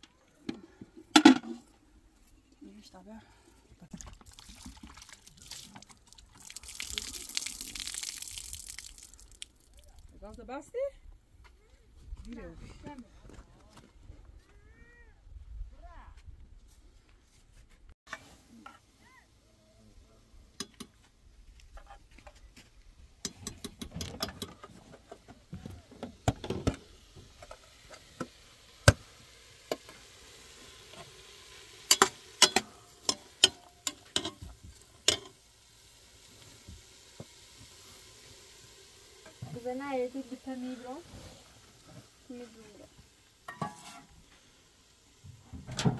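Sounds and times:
vegetables sizzling in pot: 0:26.2 - 0:45.6
metal spoon clinking on pot: 0:31.9 - 0:34.4, 0:35.1 - 0:35.3.

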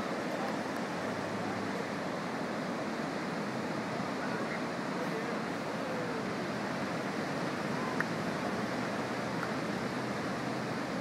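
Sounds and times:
ocean surf breaking: 0:00.0 - 0:11.0
faint distant voices: 0:03.7 - 0:11.0.

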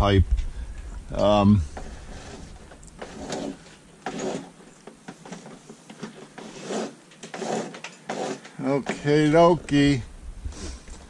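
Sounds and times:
wire scraping against a fitting: 0:01.7 - 0:09.2.

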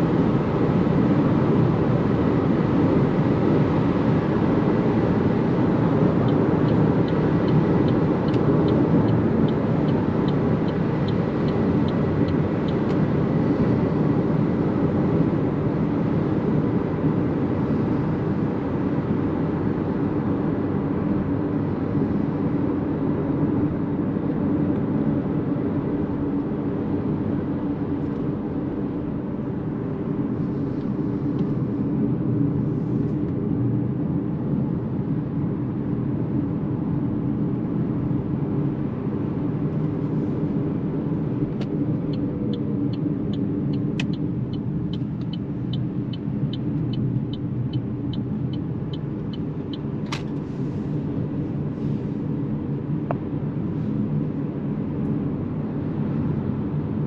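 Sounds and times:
road and tyre noise in car: 0:00.0 - 0:57.0
turn signal ticking: 0:06.0 - 0:13.2, 0:41.6 - 0:50.4.

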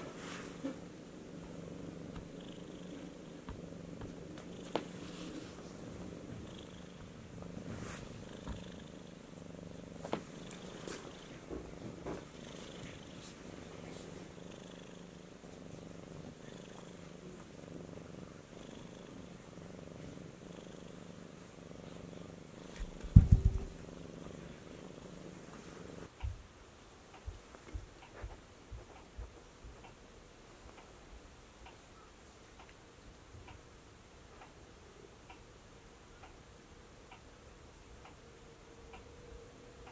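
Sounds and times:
cat purring: 0:00.0 - 0:26.4
dull heavy thumps: 0:22.8 - 0:23.8.

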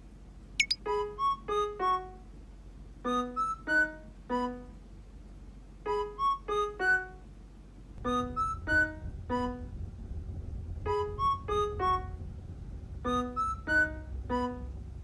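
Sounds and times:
slow sparse keyboard melody: 0:00.6 - 0:02.2, 0:03.0 - 0:04.8, 0:05.8 - 0:07.2, 0:08.0 - 0:09.8, 0:10.8 - 0:12.3, 0:13.0 - 0:15.0.

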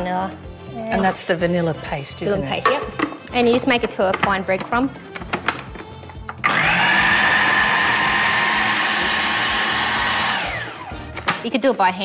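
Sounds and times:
food processor motor whine: 0:06.4 - 0:11.2.

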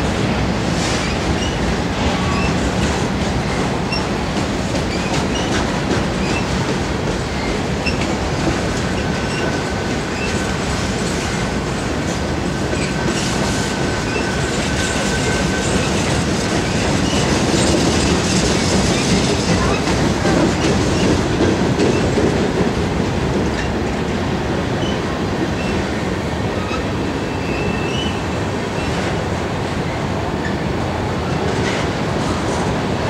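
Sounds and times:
freight train wheels rumbling: 0:00.0 - 0:33.0
wheel squeal: 0:26.6 - 0:28.2.

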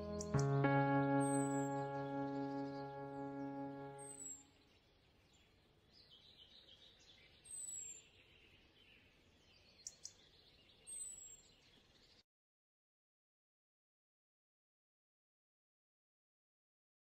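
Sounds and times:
high falling chirps: 0:00.0 - 0:04.3.

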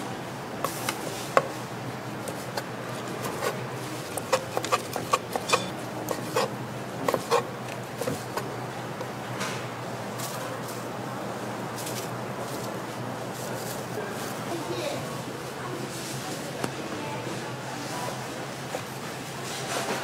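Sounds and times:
knife chopping on wooden board: 0:03.2 - 0:07.4.

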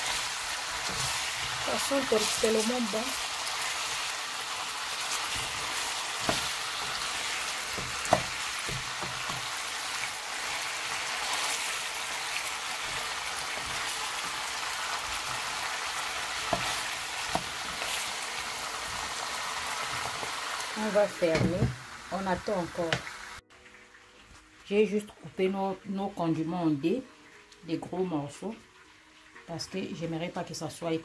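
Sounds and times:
chicken sizzling in a pan: 0:00.0 - 0:24.6, 0:26.6 - 0:31.0
spatula knocking against pan: 0:07.7 - 0:09.5.

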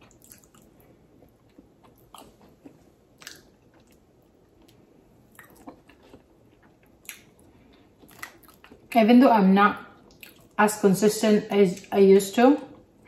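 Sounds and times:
person chewing food: 0:00.0 - 0:08.9, 0:10.0 - 0:10.6.

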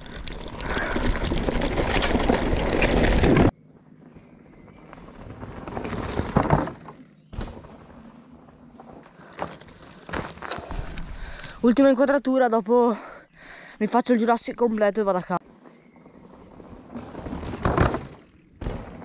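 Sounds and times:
bike tyres crunching on gravel: 0:00.0 - 0:11.5, 0:15.4 - 0:19.0.

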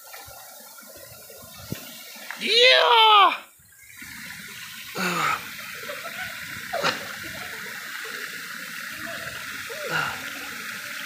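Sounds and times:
waterfall rushing: 0:01.0 - 0:11.0
person calling: 0:02.4 - 0:03.5
person shouting: 0:02.4 - 0:03.5.

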